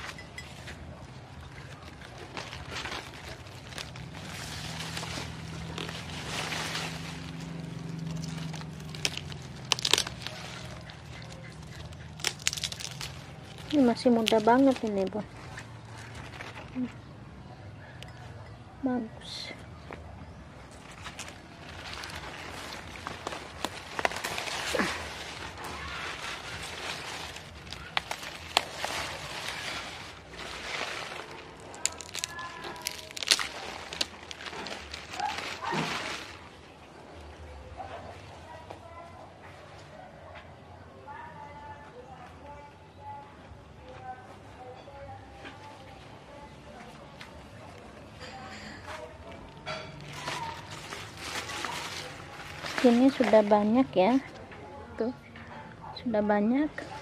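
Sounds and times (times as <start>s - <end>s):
plants rustling and crackling: 0.0s - 40.0s, 41.2s - 57.0s.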